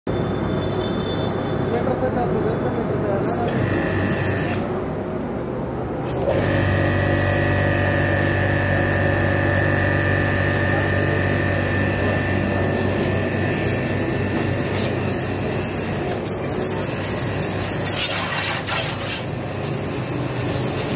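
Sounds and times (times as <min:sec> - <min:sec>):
pressure washer motor humming: 0:03.5 - 0:04.8, 0:06.0 - 0:20.9.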